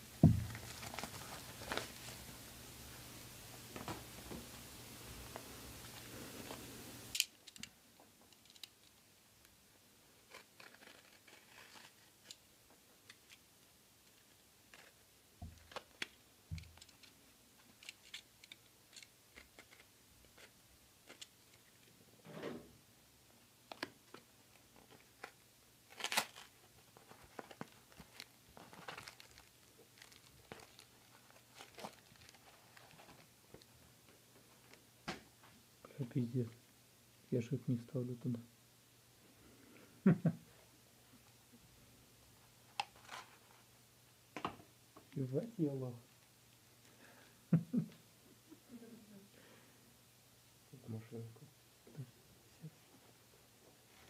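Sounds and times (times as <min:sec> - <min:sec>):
plastic bag crinkling: 0:24.8 - 0:33.3
cardboard tearing: 0:25.9 - 0:26.6.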